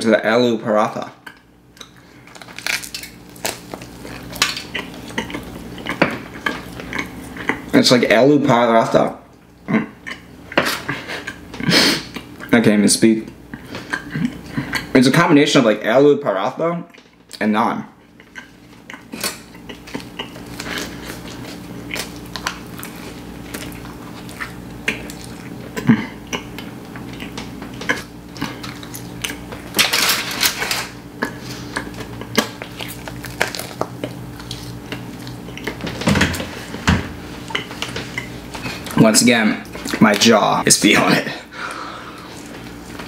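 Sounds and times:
steady low hum: 0.0 - 43.0
person chewing with mouth smacks: 1.2 - 7.7, 9.6 - 12.5, 13.5 - 14.9, 18.0 - 29.7, 31.2 - 36.8, 37.4 - 39.0, 39.6 - 40.3, 42.1 - 43.0
bread tearing rustles: 1.8 - 7.7, 18.2 - 41.2.

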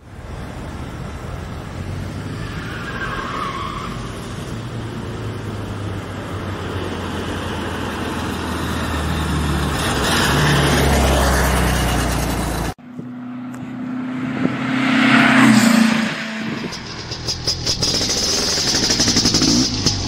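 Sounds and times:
tyres squealing: 2.1 - 4.6
car engine running: 15.4 - 20.0.

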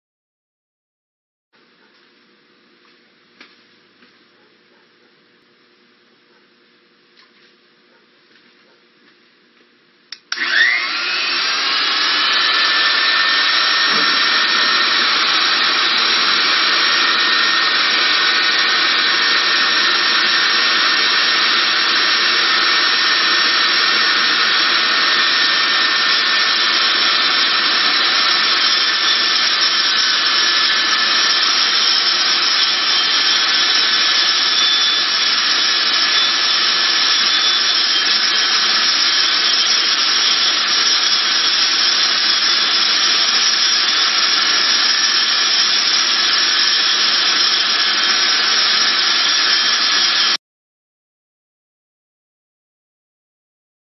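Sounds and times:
lathe cutting hiss: 10.3 - 50.4
metal lathe whining: 10.3 - 50.4.

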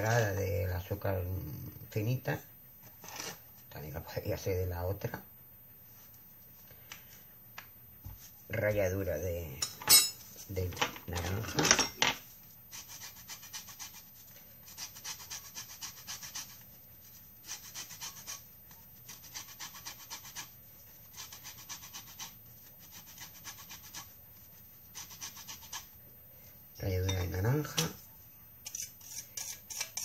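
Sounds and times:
orange rasping on metal grater: 17.4 - 24.2, 24.9 - 25.9, 28.6 - 30.0.

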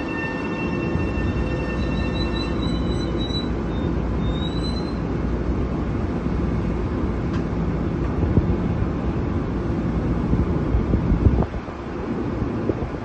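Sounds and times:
train brake squeal: 0.0 - 5.1
electric train low rumble: 0.0 - 13.0.

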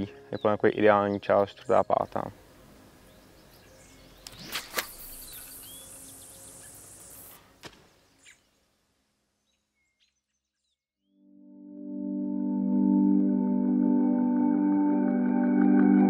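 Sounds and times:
steady high hiss: 1.7 - 9.2
bird chirps: 3.0 - 8.7, 9.3 - 10.8
music: 11.0 - 16.0.

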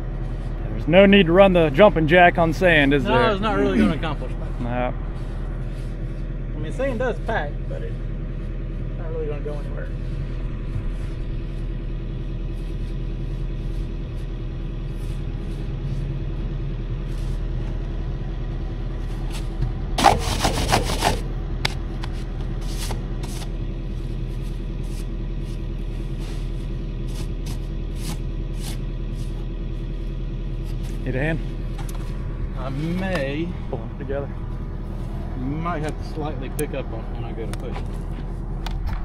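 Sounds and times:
heavy equipment engine running: 0.0 - 39.0.

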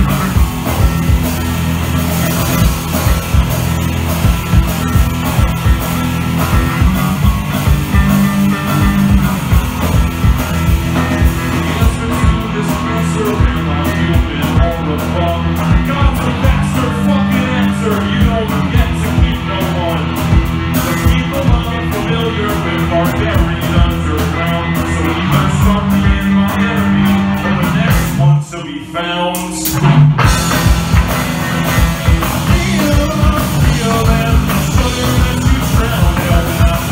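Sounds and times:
drum kit beat: 0.0 - 28.4, 29.3 - 36.9
electric bass: 0.0 - 36.9
electric guitar: 0.0 - 36.9
person singing into a microphone: 11.4 - 29.8, 32.1 - 36.9.

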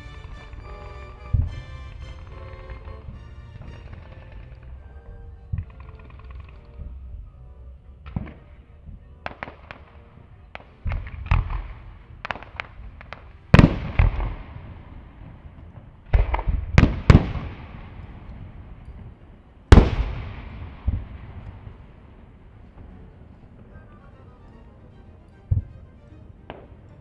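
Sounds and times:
fireworks loud bangs rumbling: 10.6 - 19.1
fireworks pops and cracks: 10.6 - 21.8.

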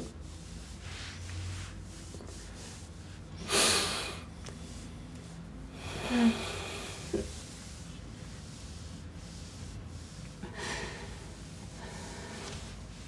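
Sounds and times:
sniffling breath: 5.7 - 7.5, 10.4 - 12.9.

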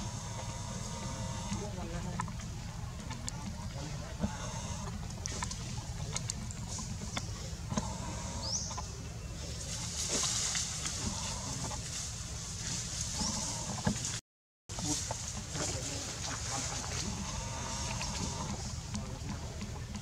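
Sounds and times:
steady low rumble: 0.0 - 14.2.

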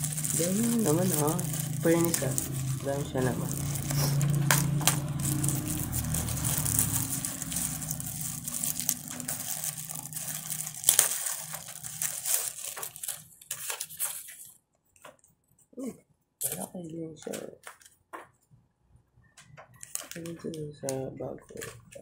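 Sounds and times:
low hum: 0.0 - 12.2
plastic packaging crinkling: 0.0 - 15.3, 19.7 - 22.0.

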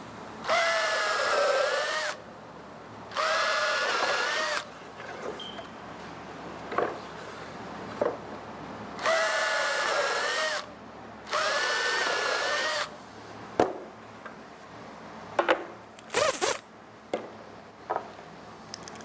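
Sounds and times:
cordless drill whining: 0.5 - 2.2, 3.1 - 4.7, 9.0 - 10.7, 11.3 - 12.9
wood and tool knocks: 6.7 - 7.0, 8.0 - 8.2, 13.6 - 13.9, 15.4 - 15.8, 17.1 - 18.1.

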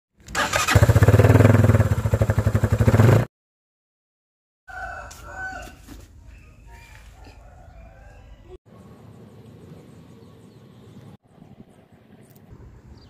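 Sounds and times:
loud motorcycle exhaust pulsing: 0.8 - 3.3.

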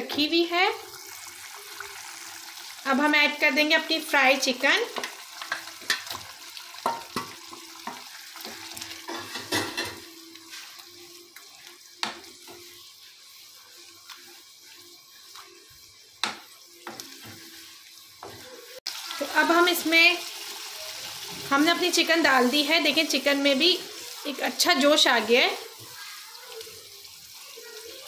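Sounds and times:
gravy sizzling in a pan: 0.0 - 28.0
spoon knocking and scraping pan: 4.8 - 10.8, 11.4 - 12.9, 15.3 - 18.5.

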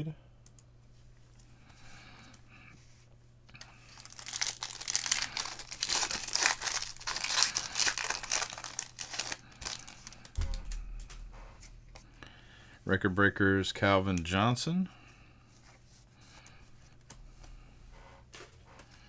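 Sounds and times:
foil wrapper tearing and crinkling: 3.6 - 10.3.

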